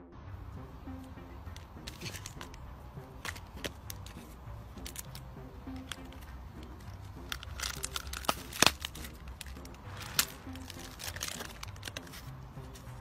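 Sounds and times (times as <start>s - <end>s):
sharp crack of wrapper: 7.2s - 12.2s
plastic wrapper crinkling: 7.2s - 12.3s.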